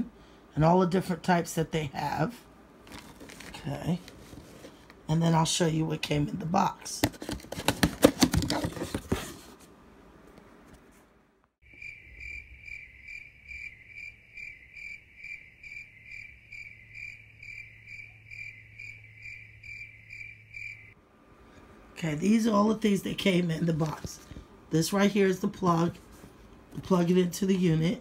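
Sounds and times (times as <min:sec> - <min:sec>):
cardboard box rustling: 0:02.9 - 0:04.9, 0:07.0 - 0:09.7.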